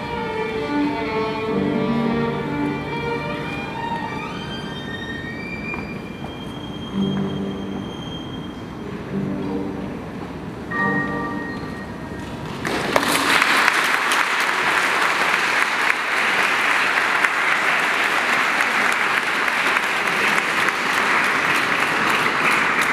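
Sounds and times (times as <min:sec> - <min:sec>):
violin and piano: 0:00.0 - 0:12.1
audience applause: 0:12.5 - 0:22.9.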